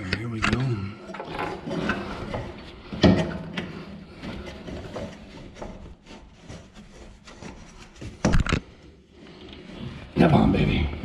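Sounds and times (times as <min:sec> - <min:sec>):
rubber rubbing against metal: 0:03.6 - 0:10.3.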